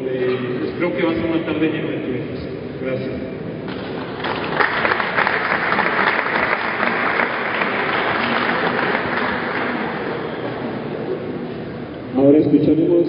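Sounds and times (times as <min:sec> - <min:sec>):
audience applauding: 0:03.7 - 0:10.9.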